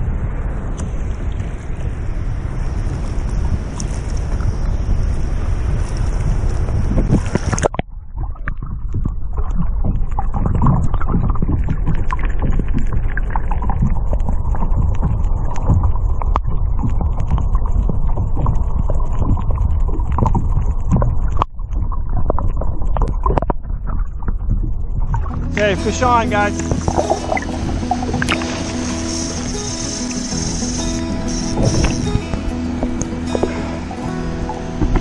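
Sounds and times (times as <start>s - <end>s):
underwater rumble: 0.0s - 35.0s
wind noise: 0.0s - 35.0s
water splashing: 0.6s - 35.0s
small underwater clicks: 5.9s - 25.4s.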